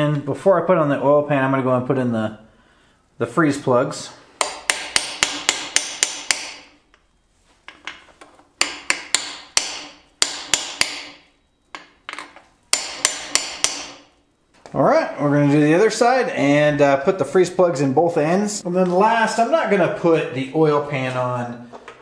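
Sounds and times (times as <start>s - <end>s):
hammer striking metal: 4.4s - 6.7s, 8.6s - 11.2s, 11.8s - 14.1s.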